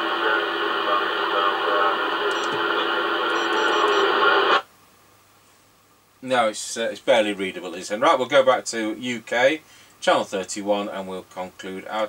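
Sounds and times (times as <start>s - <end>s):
radio static: 0.0s - 4.6s.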